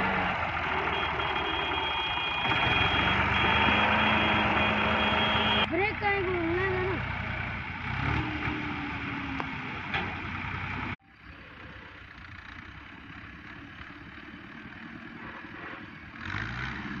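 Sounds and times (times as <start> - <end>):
tractor diesel engine running: 0.0 - 17.0.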